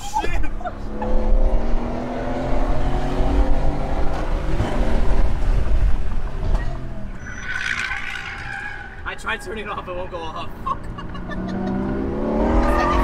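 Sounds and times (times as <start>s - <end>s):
car engine rumbling: 0.0s - 13.0s.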